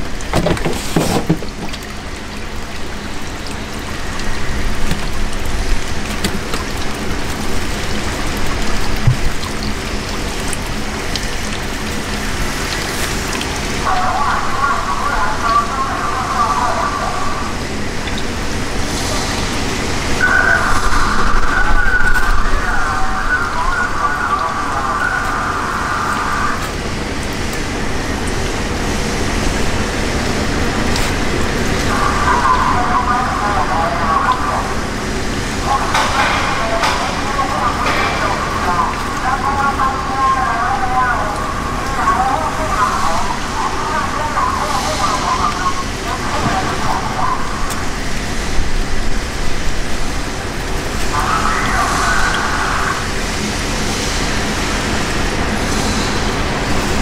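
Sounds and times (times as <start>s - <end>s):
boat engine rumbling: 0.0s - 57.0s
rushing water-like noise: 0.0s - 57.0s
high-pitched whine: 13.8s - 26.9s.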